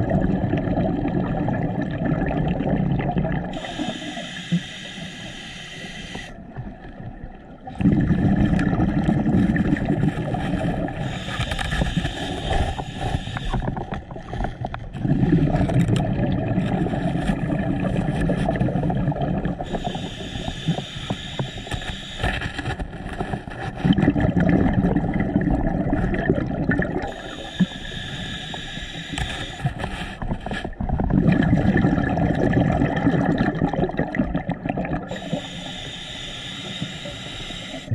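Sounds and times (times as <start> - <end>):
exhaled bubbles rumbling: 0.0 - 3.9, 6.4 - 20.9, 22.8 - 28.6, 29.4 - 35.5
regulator hiss on inhale: 3.5 - 6.4, 10.9 - 14.6, 19.6 - 22.8, 27.0 - 30.2, 35.1 - 37.9.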